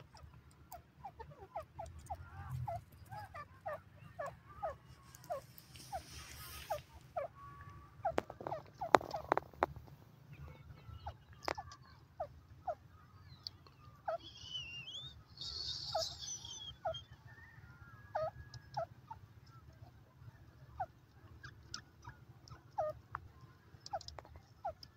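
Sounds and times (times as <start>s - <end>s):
higher warbling bird call: 14.0s - 17.6s.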